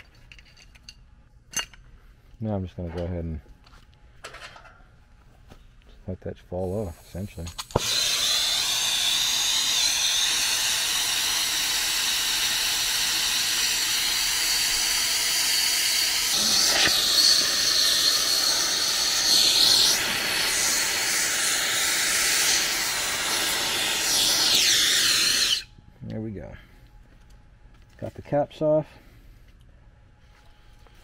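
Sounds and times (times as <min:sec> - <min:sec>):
torch flame hissing: 0:06.8 - 0:25.7.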